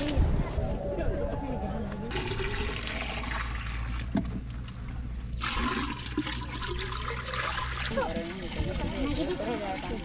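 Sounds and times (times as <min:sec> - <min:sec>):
water pouring into clay pots: 0:02.1 - 0:10.0.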